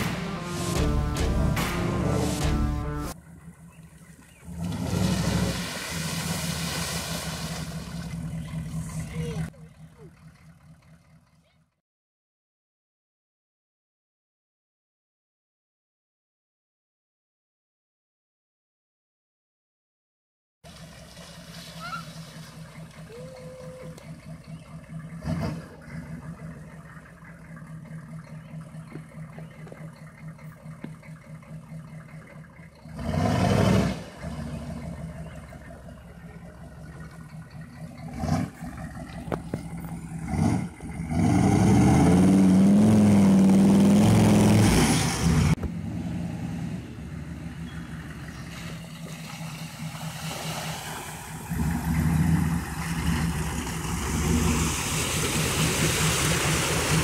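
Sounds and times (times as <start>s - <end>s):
loud engine bursts: 0.0s - 3.4s
diesel truck engine running: 0.0s - 11.8s, 20.7s - 57.0s.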